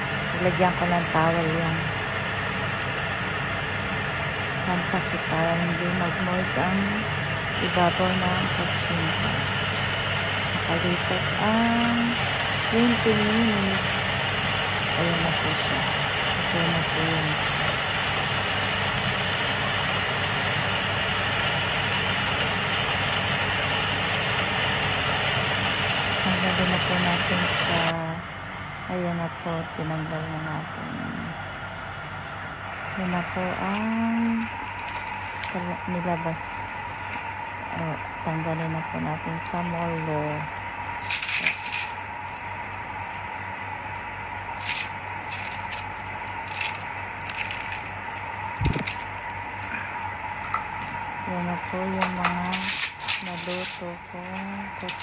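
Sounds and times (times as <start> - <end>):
stove hum and rushing: 0.0 - 55.0
aluminium foil crinkling: 44.6 - 49.7.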